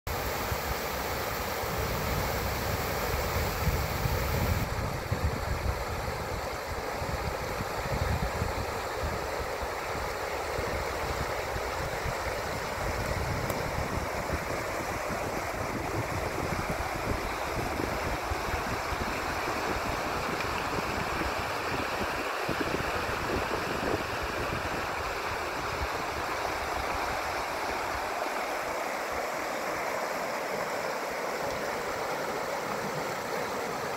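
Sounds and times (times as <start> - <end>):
stream rushing over rocks: 0.1 - 33.9
wind rumble on microphone: 1.7 - 27.2.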